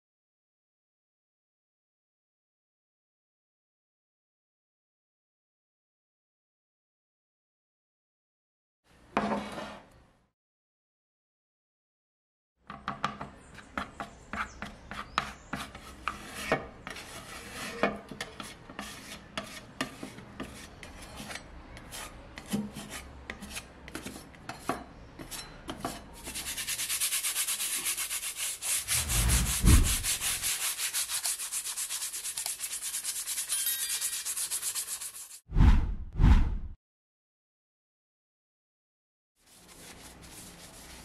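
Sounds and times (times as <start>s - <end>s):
hand sanding metal: 26.2s - 35.4s.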